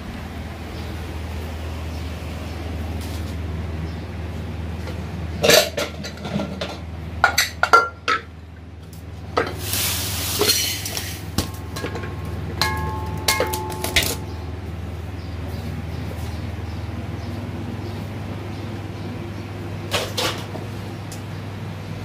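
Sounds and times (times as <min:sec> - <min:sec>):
steady low hum: 0:00.0 - 0:22.0
metal pots clanking: 0:05.4 - 0:08.3, 0:09.3 - 0:14.4
rushing hiss: 0:09.6 - 0:11.3
ringing metal strikes: 0:11.7 - 0:14.4.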